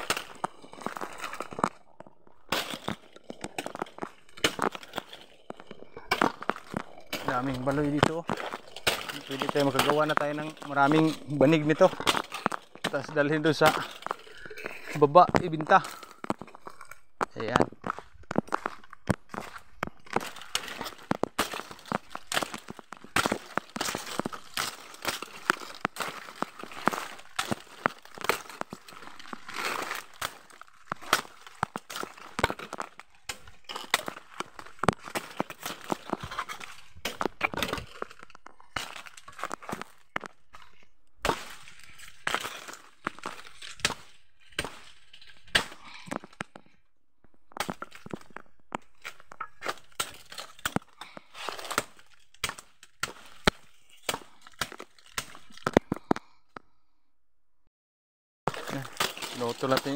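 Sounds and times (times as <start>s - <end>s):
rustling undergrowth: 0.0s - 46.3s, 58.5s - 59.9s
dry stalks snapping: 0.0s - 46.8s, 47.4s - 56.4s, 58.5s - 59.9s.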